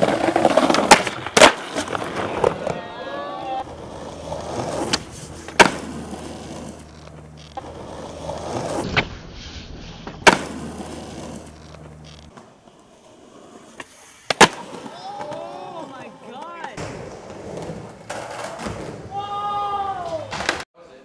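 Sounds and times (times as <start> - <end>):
skateboard wheels rolling on concrete: 0.0 - 20.7.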